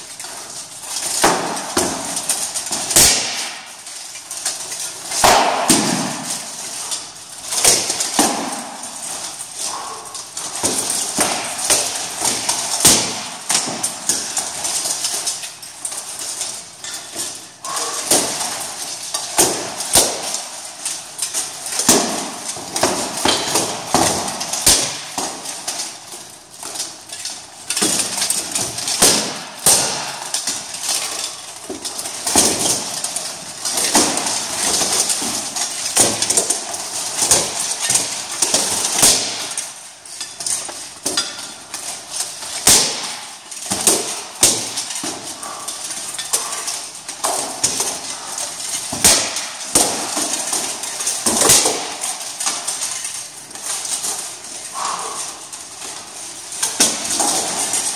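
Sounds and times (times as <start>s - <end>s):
plate armour clanking: 0.0s - 57.9s
swords striking armour and shield: 10.6s - 14.4s, 21.7s - 25.4s, 27.8s - 33.0s, 33.7s - 39.6s, 42.6s - 45.6s.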